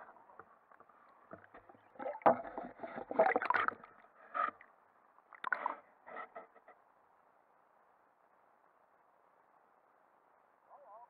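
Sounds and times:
water sloshing: 0.0 - 4.6, 5.3 - 5.8
underwater knocks and clicks: 0.3 - 4.6.

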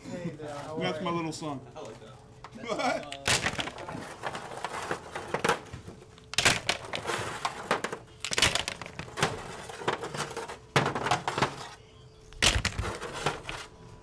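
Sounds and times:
clam shells clattering: 3.1 - 4.0, 6.3 - 7.2, 8.2 - 9.3, 12.4 - 13.6.

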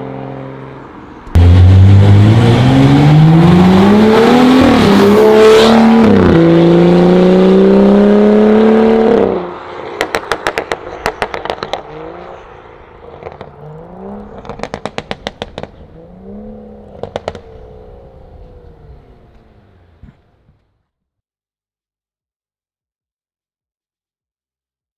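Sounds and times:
engine revving: 1.2 - 10.6, 13.1 - 20.0
car engine accelerating hard: 1.2 - 20.0
exhaust pops and crackles: 10.0 - 11.9, 13.2 - 15.8, 16.9 - 17.5.

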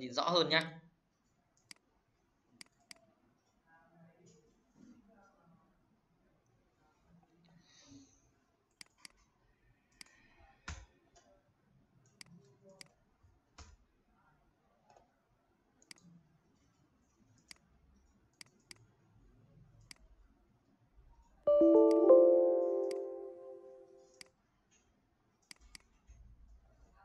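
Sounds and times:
computer mouse clicking: 2.6 - 3.0, 8.8 - 9.3, 15.8 - 16.1, 17.4 - 18.9, 25.4 - 26.0
loud piano-like music: 21.5 - 23.7.

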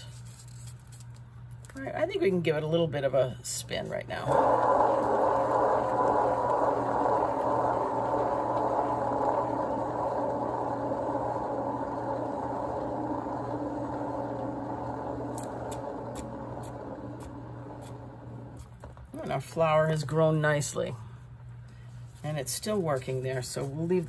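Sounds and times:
steady low hum: 0.0 - 24.0
turntable whirring: 3.7 - 20.8.

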